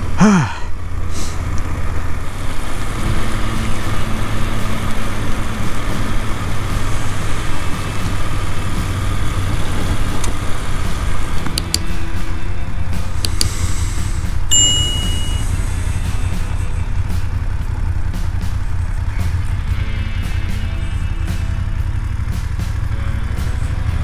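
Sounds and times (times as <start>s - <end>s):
motorcycle engine running: 0.0s - 24.0s
wind and road noise: 0.0s - 24.0s.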